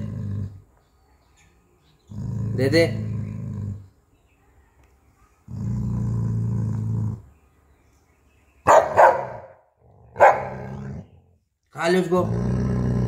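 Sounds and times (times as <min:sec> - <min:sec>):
dog growling low: 0:00.0 - 0:00.7, 0:02.0 - 0:04.0, 0:05.5 - 0:07.4, 0:09.8 - 0:11.4, 0:12.0 - 0:13.0
dog barking sharply: 0:08.7 - 0:09.6, 0:10.2 - 0:10.6.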